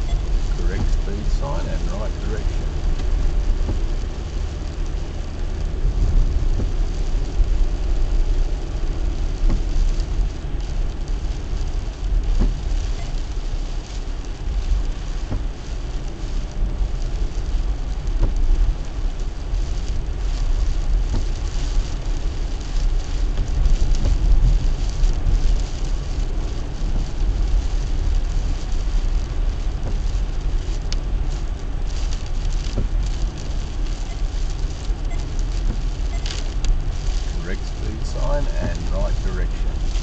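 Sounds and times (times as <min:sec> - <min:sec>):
rain on car: 0:00.0 - 0:40.0
road and engine rumble: 0:00.0 - 0:40.0
tyres hissing on wet road: 0:00.0 - 0:40.0.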